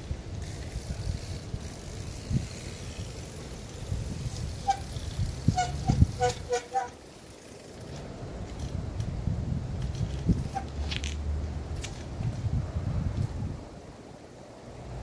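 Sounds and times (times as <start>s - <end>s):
bike brakes squealing: 4.5s - 7.0s.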